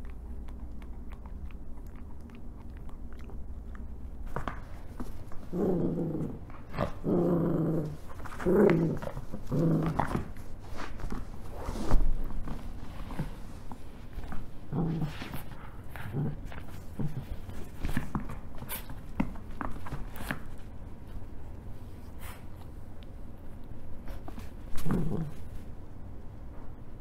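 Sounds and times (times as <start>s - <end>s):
soft chewing clicks: 0.0s - 4.9s, 22.5s - 24.2s
dog growling: 5.4s - 10.4s, 14.6s - 17.5s, 24.7s - 25.6s.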